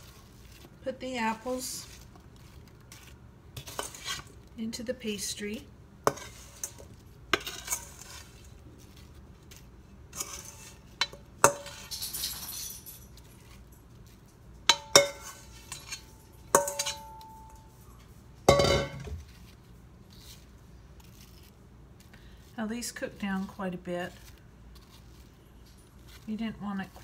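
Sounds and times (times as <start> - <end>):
metal spoon clinking on metal bowl: 14.7 - 17.8, 18.5 - 19.2.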